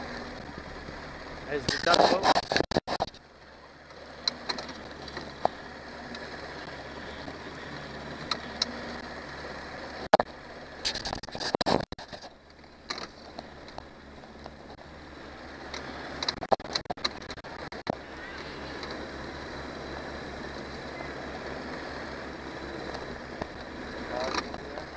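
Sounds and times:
outboard motor idling: 0.0 - 24.9
sharp knocks and rustles: 1.6 - 3.2, 9.9 - 14.8, 15.6 - 18.0.

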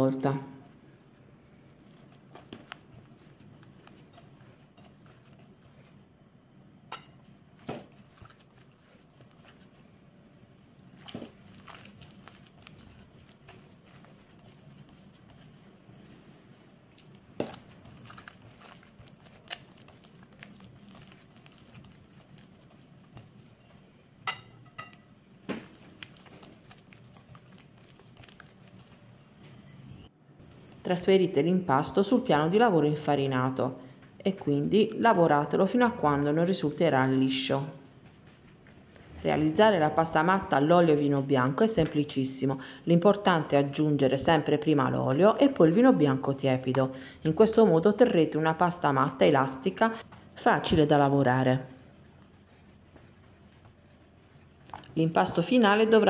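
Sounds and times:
hands working crumbly dough: 0.0 - 6.1, 6.9 - 9.9, 10.8 - 15.8, 16.9 - 29.6, 45.1 - 56.0
low steady hum: 0.0 - 56.0
glass tapping against bowl: 24.3 - 25.0.

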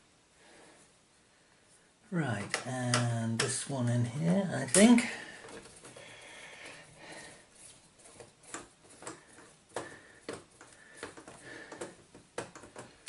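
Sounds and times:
light clicks of plastic parts: 2.3 - 6.0
screwdriver scraping: 7.4 - 13.0.

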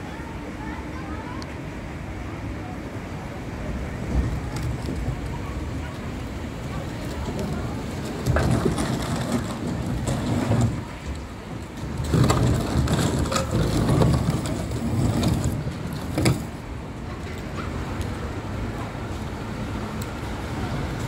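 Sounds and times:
plastic scraping across gravel: 7.1 - 16.6.

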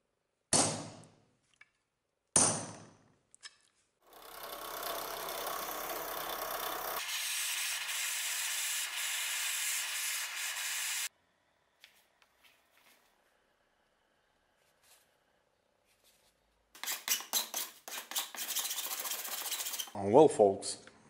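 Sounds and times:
drill press running: 4.0 - 7.2.

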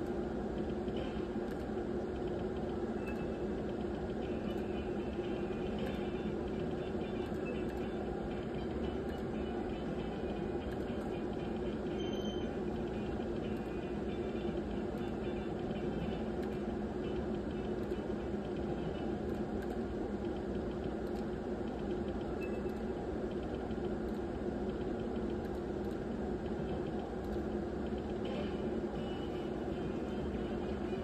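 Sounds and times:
low machinery hum and hiss: 0.0 - 31.0
slot machine electronic beeps: 4.3 - 17.2.

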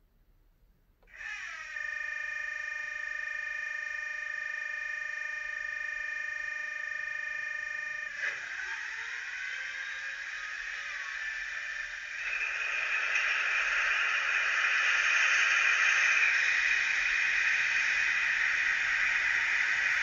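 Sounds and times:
rising whine: 1.2 - 20.0
tinny diesel engine sound effect: 9.3 - 20.0
rush of noise: 12.2 - 20.0.

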